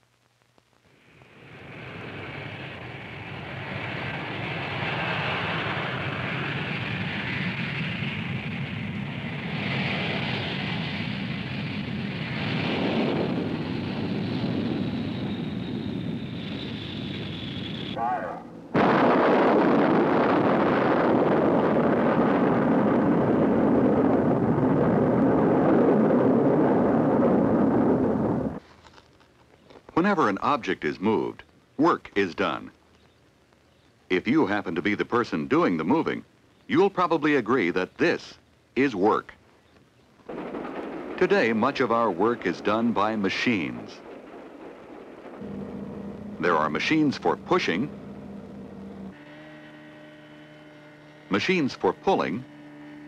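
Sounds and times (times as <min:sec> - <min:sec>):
rocket engines roaring: 0:01.0 - 0:28.6, 0:40.2 - 0:53.0
jet aircraft flying past: 0:01.1 - 0:24.3, 0:40.8 - 0:53.0.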